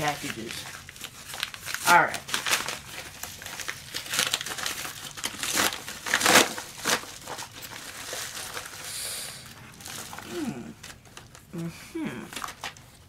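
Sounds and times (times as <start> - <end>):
paper mailer tearing: 0.0 - 8.9
soft paper rustle: 0.0 - 13.0.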